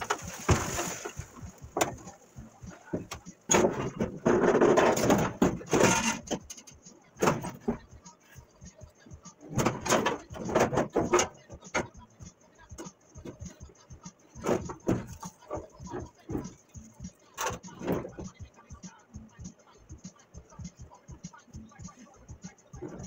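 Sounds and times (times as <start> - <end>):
metal hood scraping and rattling: 0.0 - 7.8, 9.4 - 12.0, 22.8 - 23.0
metal clunks: 0.0 - 7.9, 9.4 - 12.0, 14.4 - 18.4.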